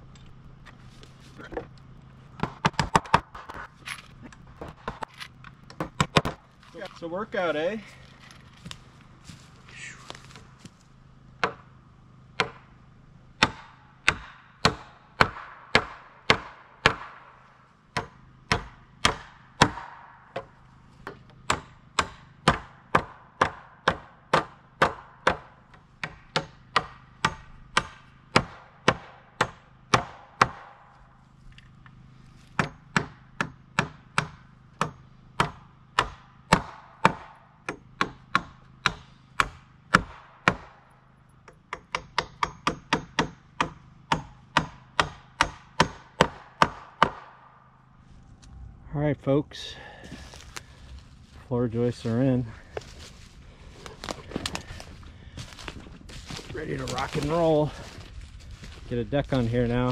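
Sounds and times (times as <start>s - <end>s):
hammer driving nails into wood: 2.4s - 3.7s, 13.4s - 17.2s, 32.6s - 40.8s, 41.5s - 47.4s.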